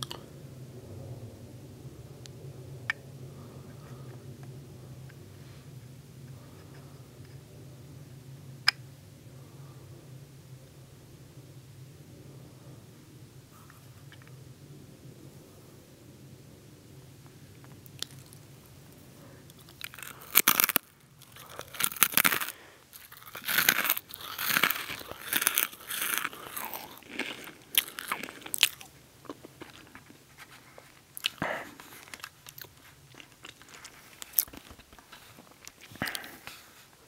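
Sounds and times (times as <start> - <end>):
soft chewing: 17.6 - 37.0
pretzel crunching: 19.5 - 36.7.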